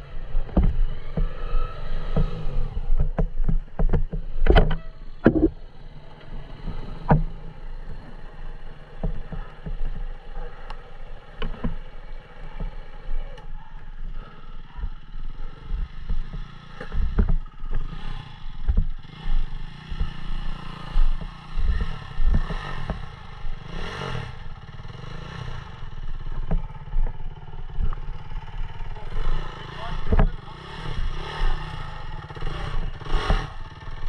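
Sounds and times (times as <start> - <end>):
dirt bike engine running: 0.0 - 34.0
knocks and clattering from bumps: 3.0 - 5.6.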